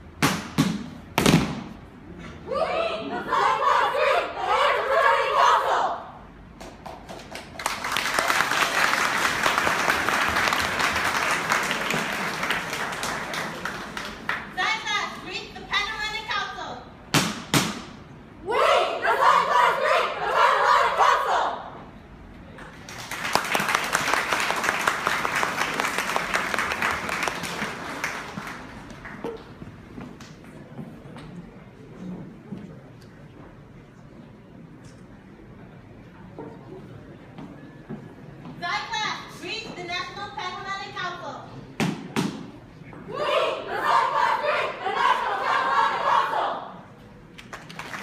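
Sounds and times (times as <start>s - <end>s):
voices: 2.1s - 6.2s, 18.4s - 21.8s, 42.8s - 46.8s
audience applauding: 7.0s - 14.5s, 22.8s - 29.6s, 47.4s - 48.0s.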